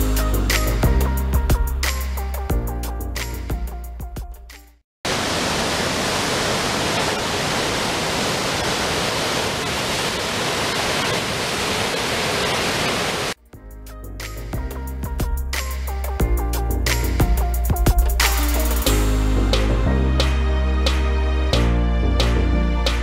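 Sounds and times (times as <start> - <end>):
background music: 0.0 - 4.8, 13.4 - 23.0
waterfall rushing: 5.1 - 13.4.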